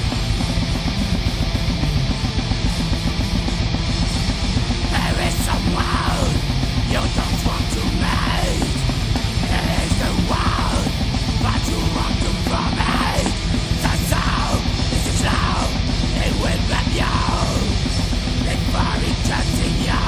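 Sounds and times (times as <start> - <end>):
distorted guitars: 0.0 - 20.0
fast drumming: 0.0 - 20.0
heavy metal band playing: 0.0 - 20.0
harsh yelled vocals: 4.8 - 20.0.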